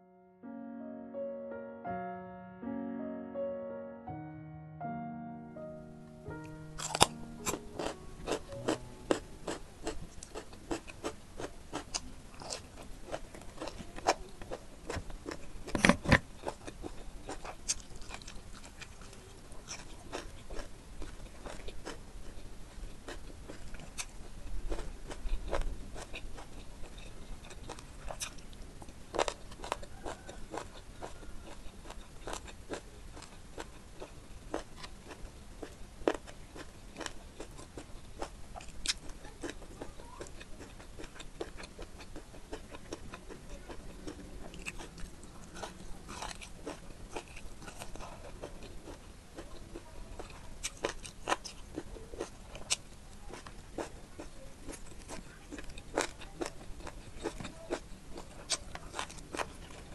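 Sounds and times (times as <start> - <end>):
chewing food: 6.8 - 59.9
crunchy bites of cucumber: 50.6 - 59.6.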